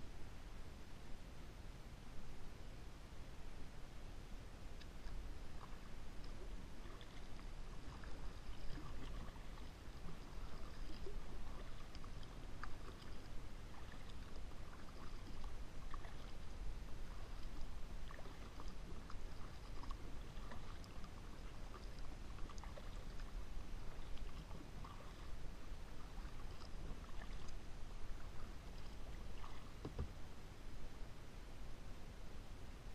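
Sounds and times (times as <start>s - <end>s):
paddle splashing in water: 4.8s - 30.2s.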